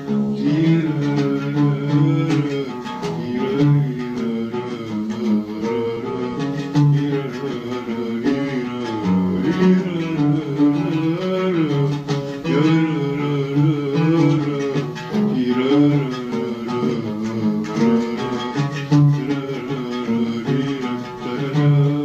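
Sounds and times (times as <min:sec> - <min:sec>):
man singing: 0:00.0 - 0:22.0
oud playing: 0:00.0 - 0:22.0.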